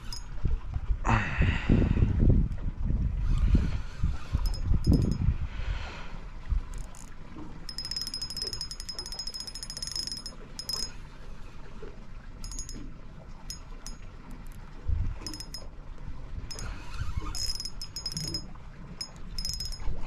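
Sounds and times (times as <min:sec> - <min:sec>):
fishing reel drag clicking: 0:00.0 - 0:00.3, 0:03.2 - 0:05.2, 0:06.7 - 0:07.1, 0:07.7 - 0:11.0, 0:12.4 - 0:12.8, 0:15.2 - 0:15.6, 0:16.5 - 0:19.8.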